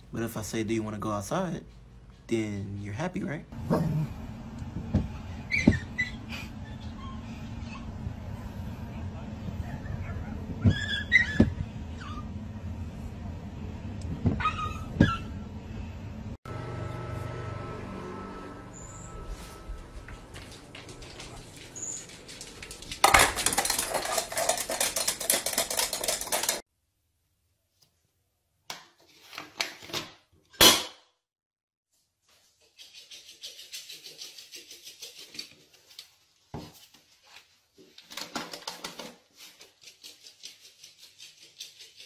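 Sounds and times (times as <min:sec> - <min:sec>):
dishes and cutlery rattling: 0:22.4 - 0:26.6.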